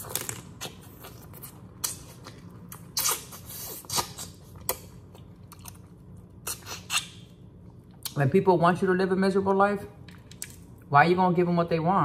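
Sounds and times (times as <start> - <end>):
wet eating smacks: 0.5 - 7.2.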